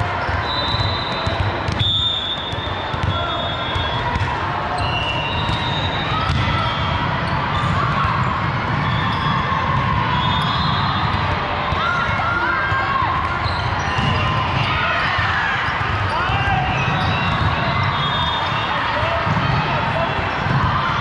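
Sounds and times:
balls bouncing and struck: 0.0 - 18.3, 19.2 - 21.0
murmur of voices: 0.0 - 21.0
shoe squeaks: 13.4 - 14.3.

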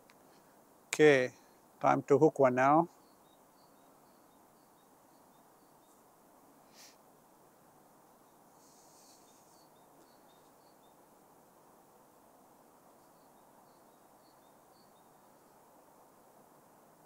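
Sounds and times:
faint outdoor hiss: 0.0 - 17.0
small bird chirping: 2.9 - 7.0, 8.1 - 11.1, 12.9 - 15.8.

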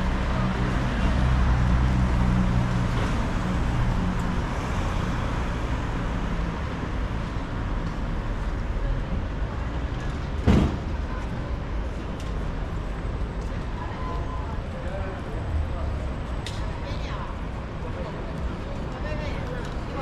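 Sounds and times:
street traffic noise: 0.0 - 20.0.

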